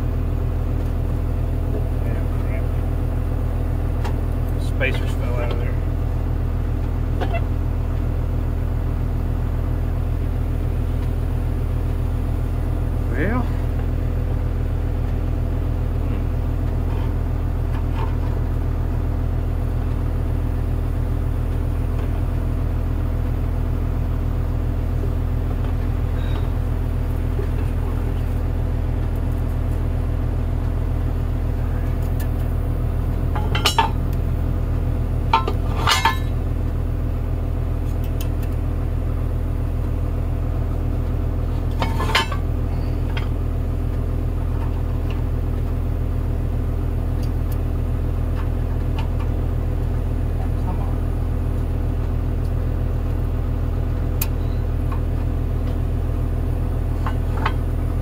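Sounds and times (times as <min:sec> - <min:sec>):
heavy engine idling: 0:00.0 - 0:58.0
metal parts clinking: 0:35.3 - 0:36.3.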